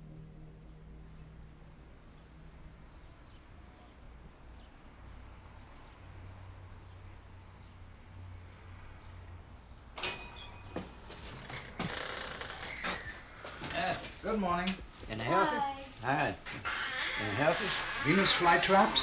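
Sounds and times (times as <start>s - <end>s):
faint low hum: 0.0s - 9.8s
loud metallic ring: 10.0s - 11.0s.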